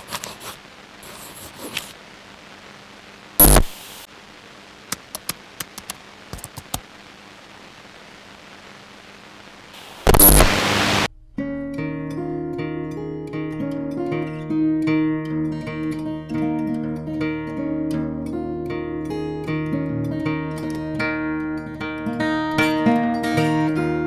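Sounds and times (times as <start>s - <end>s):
loud static burst: 0.0s - 11.1s
static hiss: 0.0s - 11.1s.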